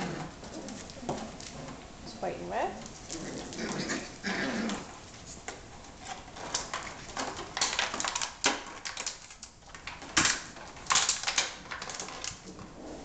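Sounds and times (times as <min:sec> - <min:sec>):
puppies scuffling on hard floor: 0:00.0 - 0:13.0
claws clicking and scraping: 0:02.8 - 0:13.0.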